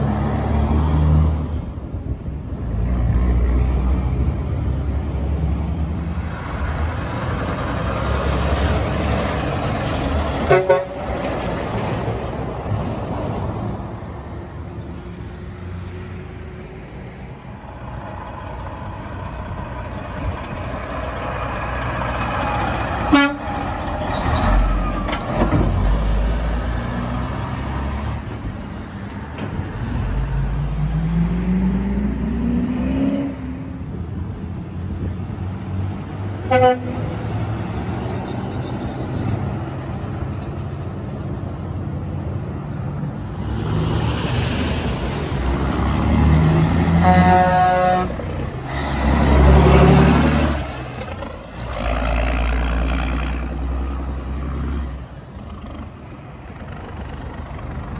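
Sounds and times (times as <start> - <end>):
diesel trucks driving past: 0.0 - 57.9
truck air horn toots: 10.4 - 11.1, 23.0 - 23.8, 36.5 - 37.2, 46.8 - 48.8.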